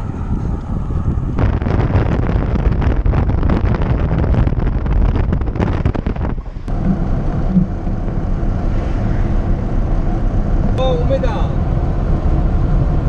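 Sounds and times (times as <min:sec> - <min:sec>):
truck engine drone: 0:00.0 - 0:03.0, 0:05.8 - 0:13.0
road noise rumbling: 0:00.0 - 0:13.0
wind buffeting microphone: 0:00.0 - 0:13.0.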